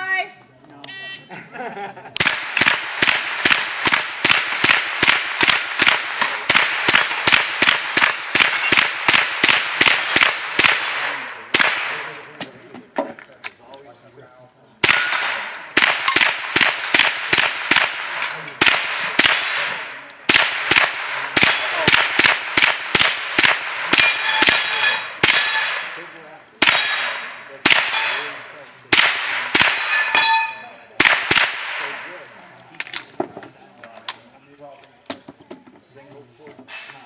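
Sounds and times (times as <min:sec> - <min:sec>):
steel target plates ringing: 0:02.2 - 0:11.5, 0:14.8 - 0:15.8, 0:23.9 - 0:28.6, 0:29.6 - 0:30.8
rifle shots: 0:02.2 - 0:12.3, 0:14.8 - 0:30.2, 0:31.0 - 0:32.2.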